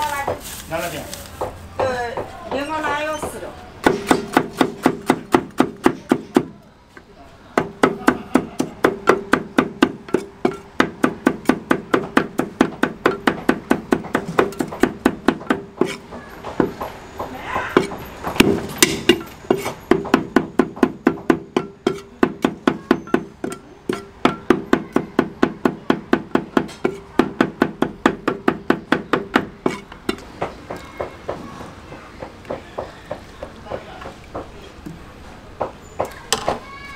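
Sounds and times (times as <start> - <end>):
cleaver chopping on wooden block: 3.8 - 6.6, 7.6 - 16.9, 17.6 - 31.4.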